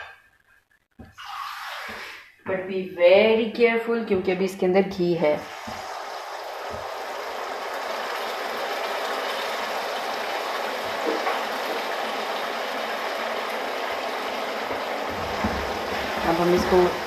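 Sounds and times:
sugar sizzling in hot fat: 5.3s - 17.0s.

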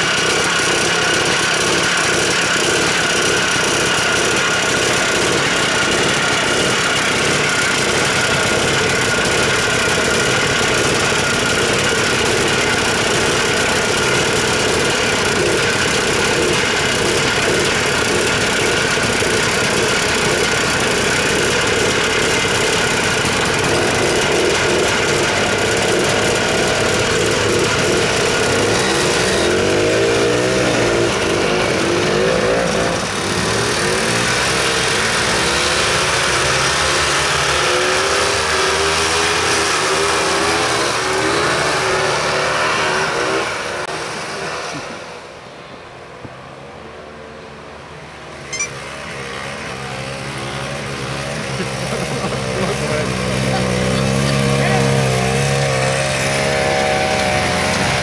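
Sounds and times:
snowmobile engines revving: 0.0s - 45.5s, 48.1s - 58.0s
snowmobile approaching: 0.0s - 45.6s, 46.4s - 58.0s.

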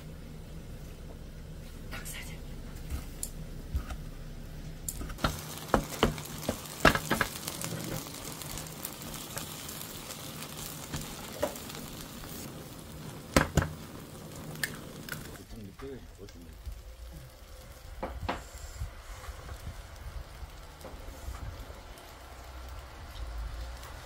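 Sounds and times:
food sizzling in oil: 4.9s - 24.0s.

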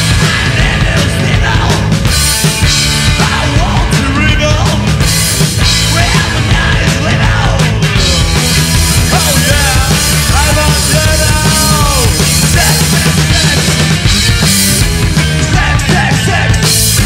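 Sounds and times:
person singing: 0.0s - 2.0s, 3.1s - 5.0s, 5.8s - 13.8s, 15.4s - 16.8s
punk band playing live: 0.0s - 17.0s.

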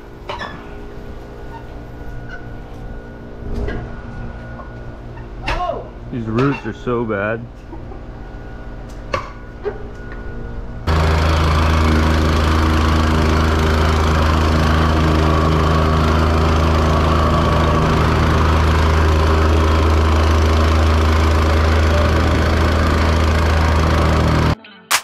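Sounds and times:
plate compactor running: 10.8s - 24.6s.

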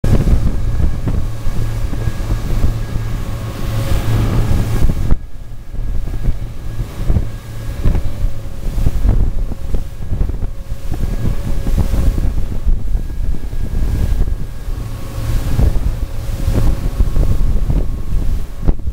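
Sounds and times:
boat through choppy water: 0.0s - 18.9s
outboard motors whining: 0.0s - 18.9s
wind buffeting microphone: 0.0s - 18.9s.

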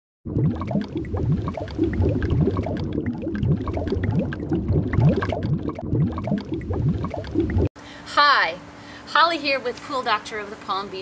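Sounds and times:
underwater bubbles gurgling: 0.2s - 7.7s
steady low rumble: 0.3s - 7.7s.

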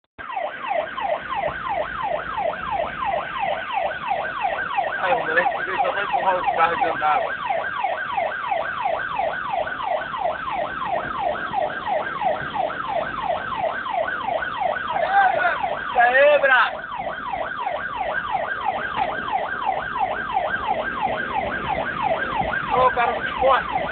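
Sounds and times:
ambulance siren yelping: 0.2s - 23.9s.

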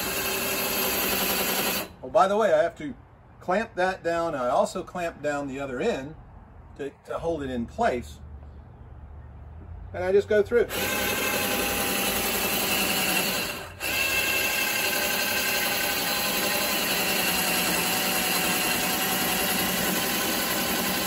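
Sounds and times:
cordless drill whining: 0.0s - 2.0s, 10.7s - 21.0s.

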